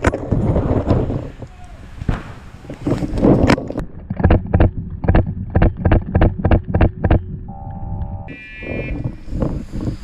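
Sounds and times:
short buzzing tone: 7.5 - 9.1.

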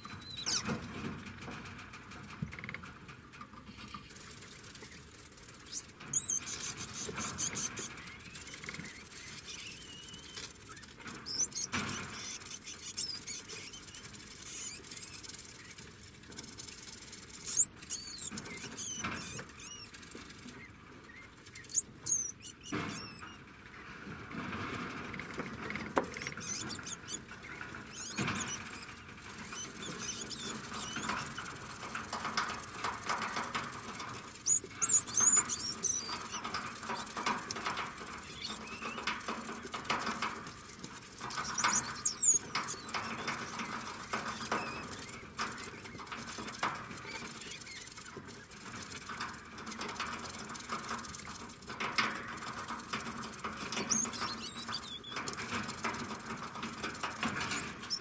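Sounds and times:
high-pitched rodent squeaks: 0.0 - 0.8, 4.0 - 23.4, 26.1 - 49.3, 52.1 - 56.2, 56.8 - 58.0.

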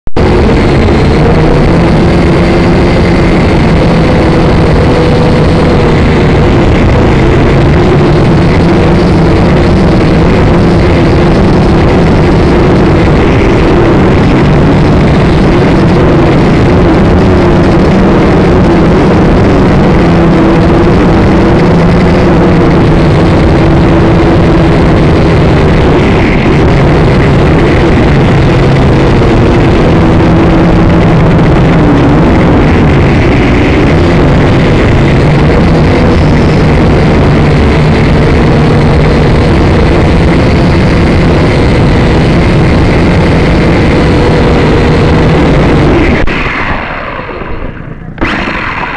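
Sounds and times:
quadcopter motors and propellers: 0.2 - 48.9.

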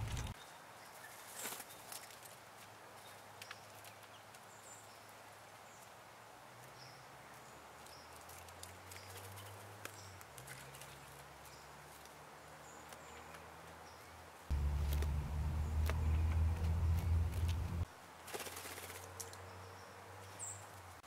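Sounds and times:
faint low hum: 14.5 - 17.8.

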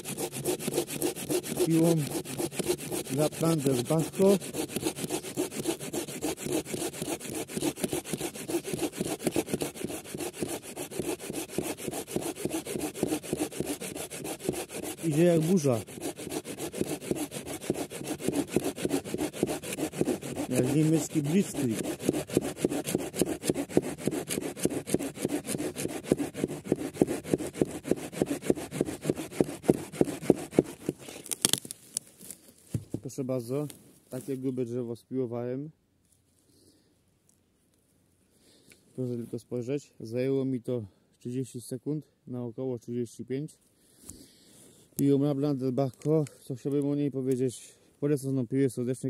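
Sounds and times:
saw cutting through log: 0.0 - 31.6.

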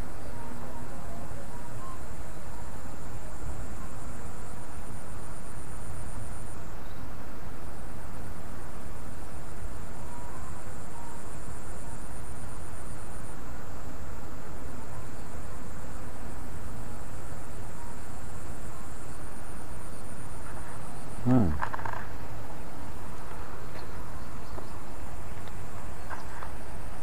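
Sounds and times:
insects trilling: 0.0 - 27.0
steady rushing background noise: 0.0 - 27.0.

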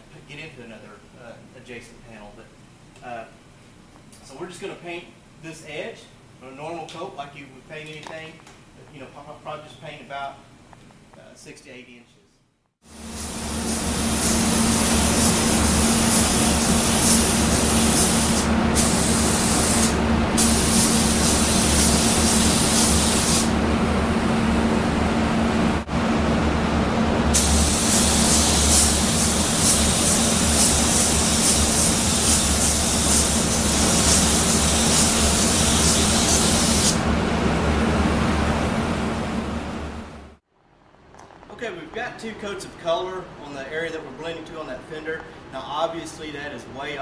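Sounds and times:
steady low hum: 0.0 - 47.0
spray gun hissing: 12.9 - 23.6, 27.3 - 37.0.

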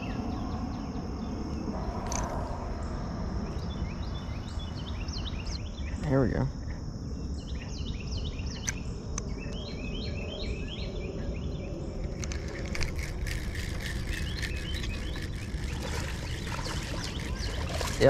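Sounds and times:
low rumble: 0.0 - 5.6
high insect drone: 0.0 - 18.0
songbirds chirping: 0.0 - 18.0.

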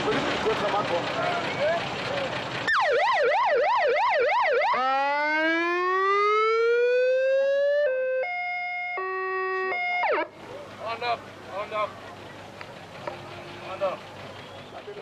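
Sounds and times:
electronic police siren: 2.7 - 10.3.

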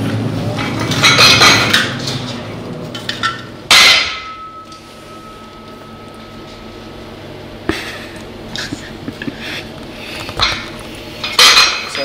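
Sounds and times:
metal clang on exhaust silencer: 3.2 - 5.8.

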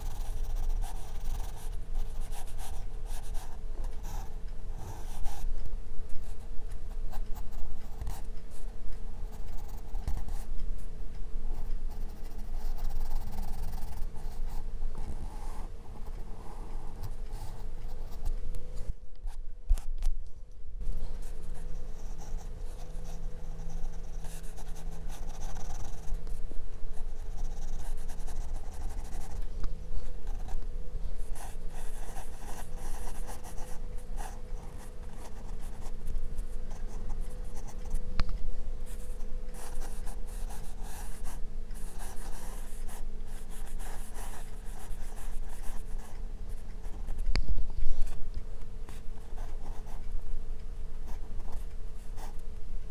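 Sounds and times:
pencil scratching on paper: 0.0 - 5.5, 9.2 - 10.5, 11.5 - 18.3, 21.1 - 26.2, 26.9 - 29.4, 31.2 - 38.0, 38.9 - 48.2, 48.9 - 50.1.

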